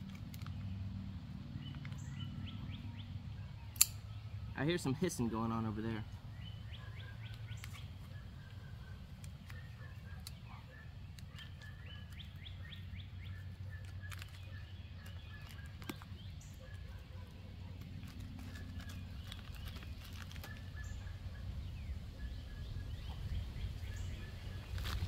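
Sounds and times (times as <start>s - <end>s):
birds calling and chirping: 0.0s - 25.0s
plastic pouch crackling: 13.8s - 17.0s, 17.8s - 20.8s, 24.6s - 25.0s.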